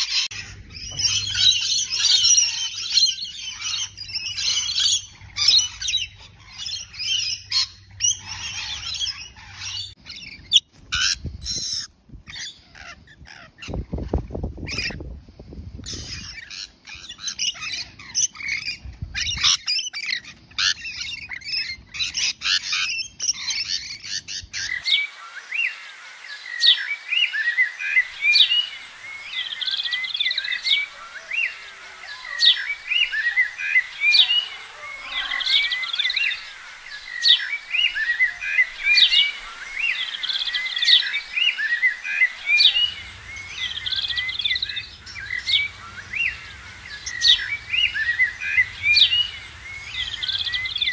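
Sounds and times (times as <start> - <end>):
high bird chirps and tweets: 0.0 - 15.0, 15.8 - 50.9
lorikeets chattering and screeching: 0.0 - 15.1, 15.8 - 50.9.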